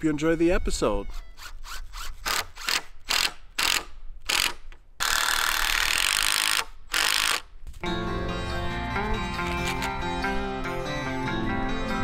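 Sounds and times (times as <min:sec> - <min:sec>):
tape measure blade rattling out: 0:01.0 - 0:07.5.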